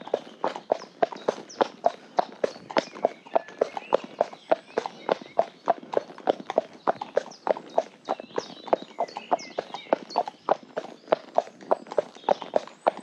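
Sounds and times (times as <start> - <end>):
horse hooves clip-clopping on tarmac: 0.0 - 13.0.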